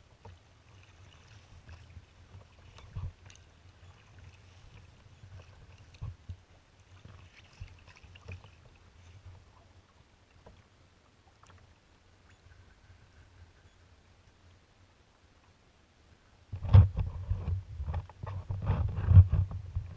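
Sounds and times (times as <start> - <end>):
water splashing against kayak hull: 0.0 - 11.8.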